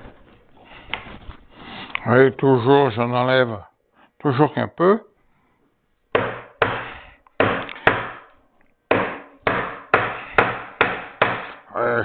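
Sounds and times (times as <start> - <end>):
mallet striking chisel in wood: 6.1 - 8.3, 8.9 - 11.6.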